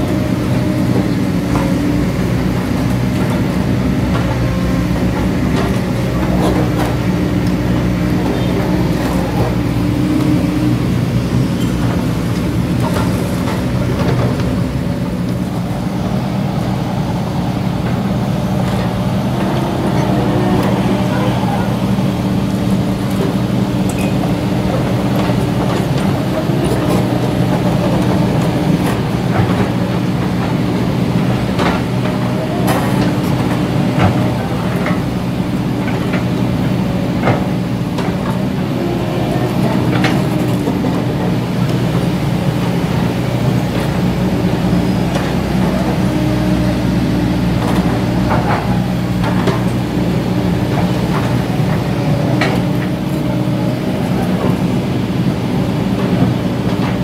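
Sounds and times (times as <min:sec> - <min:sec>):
excavator diesel engine running: 0:00.0 - 0:57.0
excavator bucket clanks: 0:17.7 - 0:57.0.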